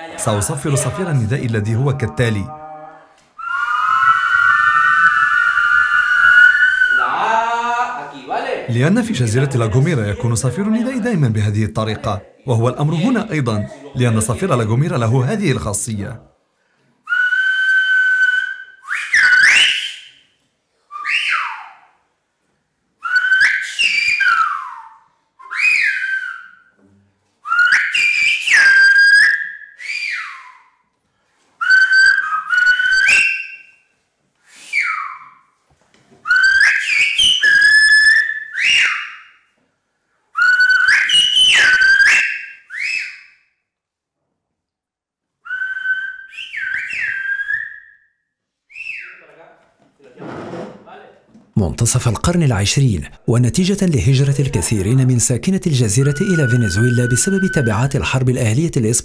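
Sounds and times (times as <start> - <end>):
man whistling gliding phrases: 3.4 - 7.2, 17.0 - 21.9, 23.0 - 26.8, 27.4 - 30.9, 31.6 - 35.6, 36.3 - 39.2, 40.4 - 43.5, 45.4 - 49.3, 55.6 - 59.0.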